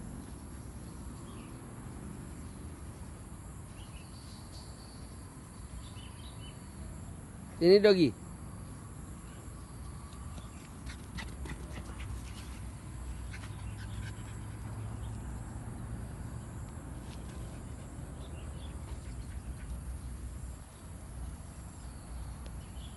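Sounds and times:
dog sounds: 0:10.7 - 0:15.2.

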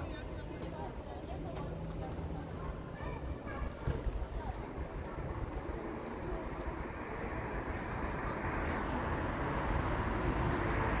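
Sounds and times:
vehicle low rumble: 0:00.0 - 0:11.0.

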